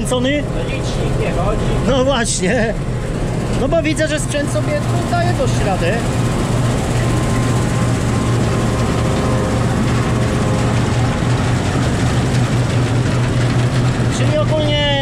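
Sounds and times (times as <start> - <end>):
combine harvester drone: 0.0 - 15.0
faint whining tones: 2.8 - 14.0.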